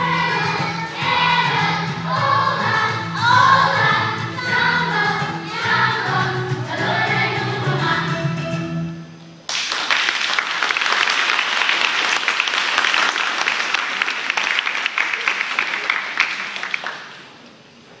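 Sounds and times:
audience applauding: 0:09.5 - 0:17.4.

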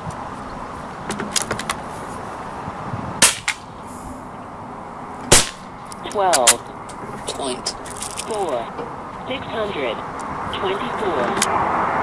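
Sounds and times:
air rifle shot: 0:03.2 - 0:03.7, 0:05.3 - 0:05.7.

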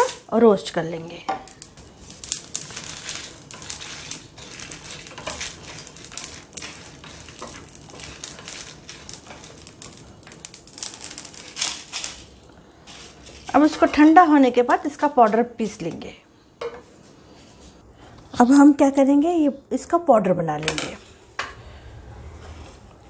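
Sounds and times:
spices rattling in a dry pan: 0:01.4 - 0:13.0.

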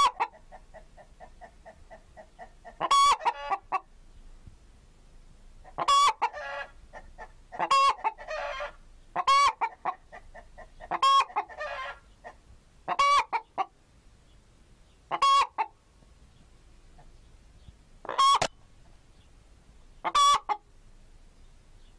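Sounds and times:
chicken clucking: 0:00.0 - 0:03.9, 0:05.6 - 0:13.7, 0:15.1 - 0:15.8, 0:16.9 - 0:17.3, 0:18.0 - 0:19.3, 0:20.0 - 0:20.7.

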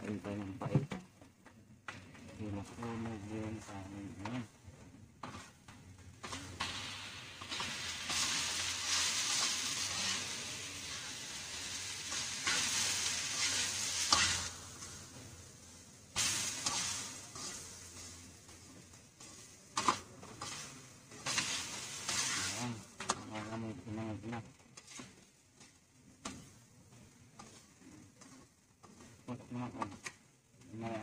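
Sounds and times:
spatula scraping wok: 0:05.2 - 0:23.6, 0:24.4 - 0:30.2
rice sizzling in oil: 0:05.2 - 0:31.0.

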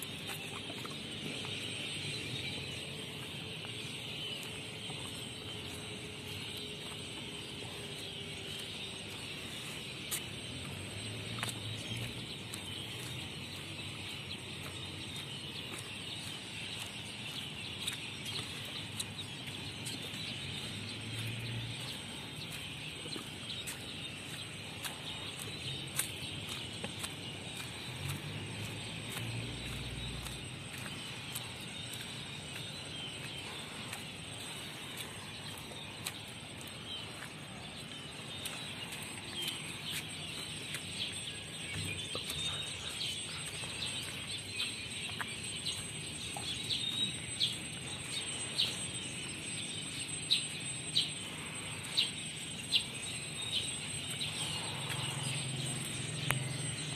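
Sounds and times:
many birds chirping: 0:00.0 - 0:56.9.

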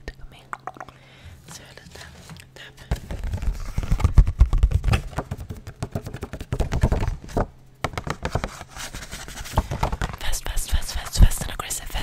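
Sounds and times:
package crinkling and scratching: 0:01.6 - 0:05.7.

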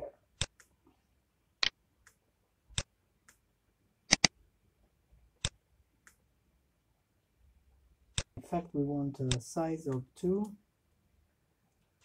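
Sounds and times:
computer mouse clicks: 0:04.1 - 0:04.3.

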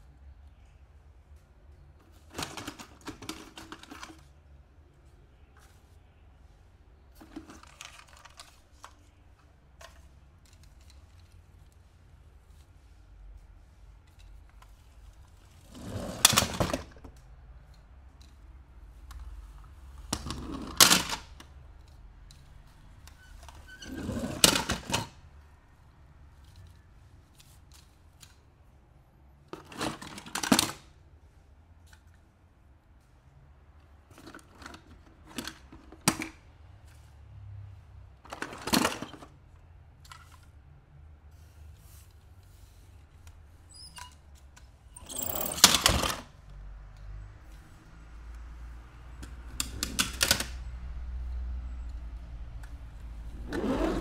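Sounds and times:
toys clattering on artificial grass: 0:44.4 - 0:46.3.

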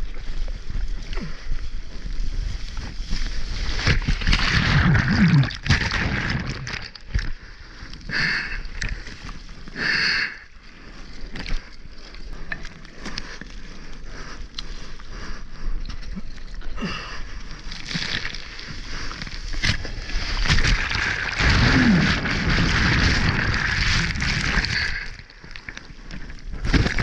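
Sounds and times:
ocean water rushing and splashing: 0:20.0 - 0:25.5.

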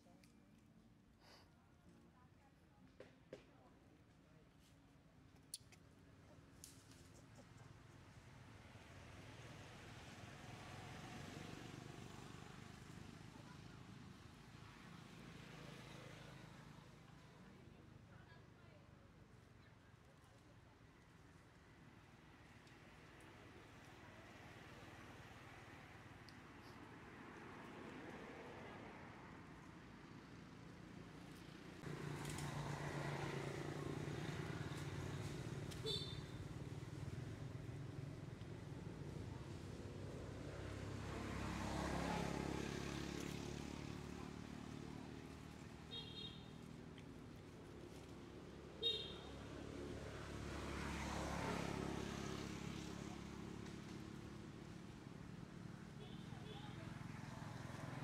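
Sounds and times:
engine running with low hum: 0:30.6 - 0:41.2.

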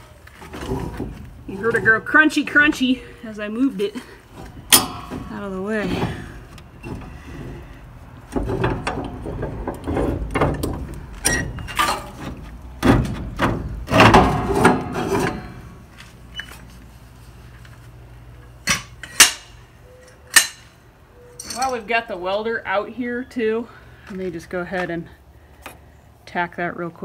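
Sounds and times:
metal tools clanking and scraping: 0:03.8 - 0:12.4, 0:13.9 - 0:16.8, 0:18.6 - 0:21.9.

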